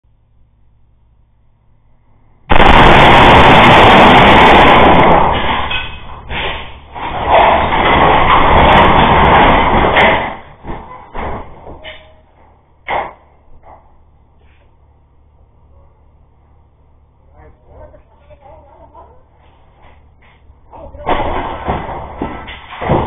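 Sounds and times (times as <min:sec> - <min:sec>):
truck crashing through glass doors: 0:02.5 - 0:12.2, 0:21.0 - 0:23.0
falling debris clattering: 0:02.5 - 0:13.8, 0:20.7 - 0:23.0.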